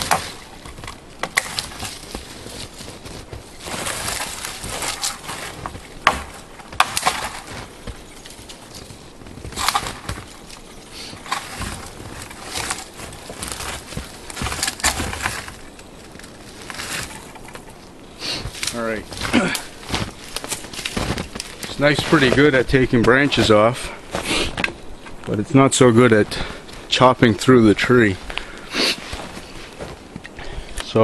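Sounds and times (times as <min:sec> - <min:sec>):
sharp wood cracks: 0:00.0 - 0:23.2
branches and twigs rustling: 0:00.0 - 0:31.0
knife chopping branches: 0:03.7 - 0:08.0.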